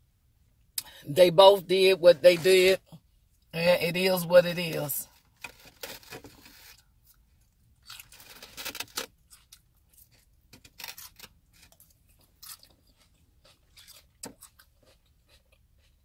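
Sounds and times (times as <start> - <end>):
person chewing food: 7.0 - 16.0.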